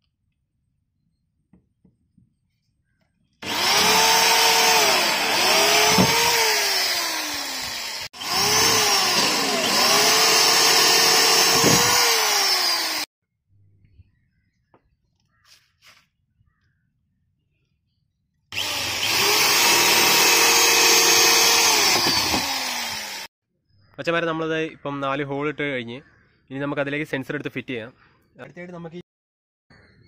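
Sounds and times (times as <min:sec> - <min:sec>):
electric drill cutting plastic: 0:03.4 - 0:13.1, 0:18.5 - 0:23.3.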